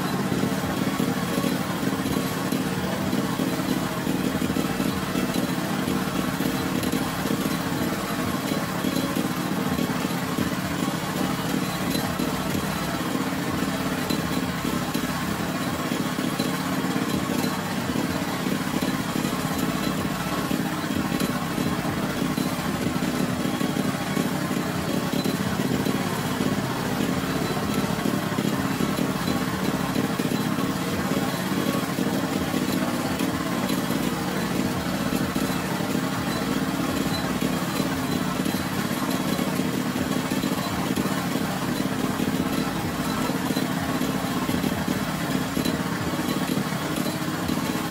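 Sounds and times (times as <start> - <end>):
small engine running: 0.0 - 47.9.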